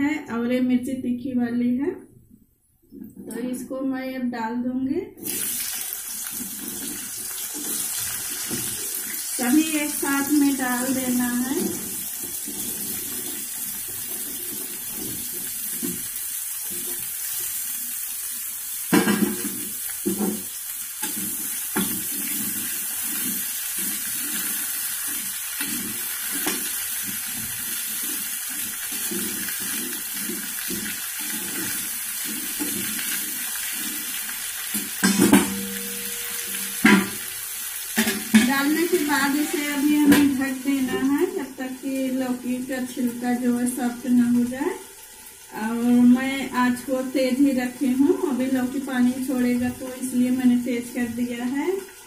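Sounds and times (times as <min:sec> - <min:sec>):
spatula stirring and scraping pan: 0:05.2 - 0:41.3
vegetables sizzling in hot oil: 0:05.2 - 0:52.0.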